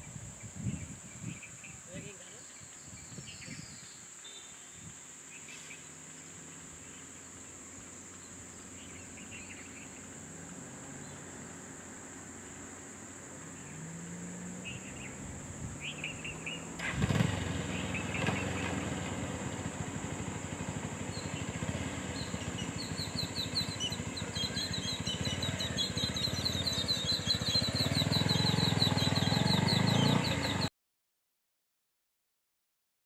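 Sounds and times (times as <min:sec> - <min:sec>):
birds chirping: 0:00.4 - 0:10.3, 0:13.4 - 0:30.7
vehicle engine running: 0:05.0 - 0:30.7.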